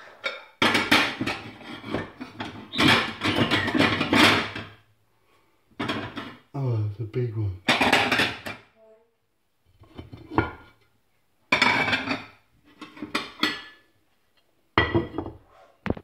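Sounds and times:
crockery and cutlery clattering: 0.0 - 4.8, 5.8 - 6.4, 7.7 - 8.7, 11.5 - 13.9, 14.8 - 15.4.

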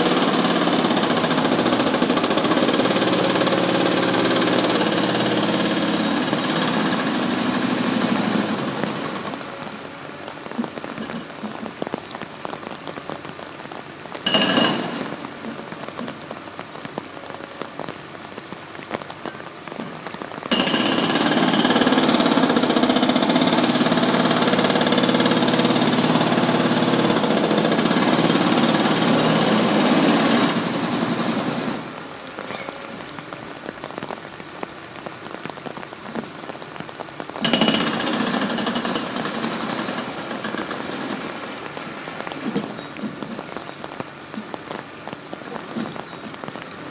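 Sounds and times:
excavator diesel engine: 0.0 - 12.0, 19.9 - 33.4, 37.4 - 44.2
fine patter like rain: 0.0 - 46.9.

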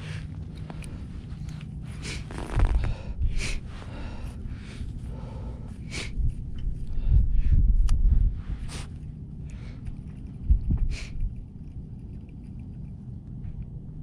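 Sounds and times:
person sniffing: 1.9 - 6.4, 8.6 - 9.0, 10.9 - 11.2
wind buffeting microphone: 5.6 - 12.2.

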